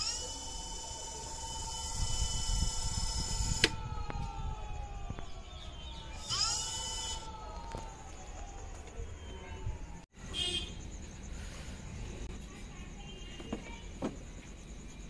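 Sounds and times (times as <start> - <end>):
electric motor whining: 0.0 - 3.8, 6.2 - 7.3.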